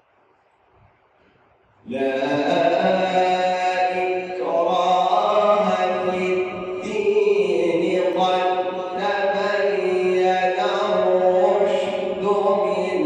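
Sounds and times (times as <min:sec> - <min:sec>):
man chanting melodically: 0:01.9 - 0:13.0.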